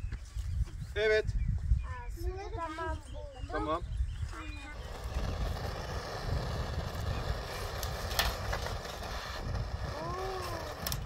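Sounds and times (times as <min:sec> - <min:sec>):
gas torch burning: 0:04.3 - 0:11.0.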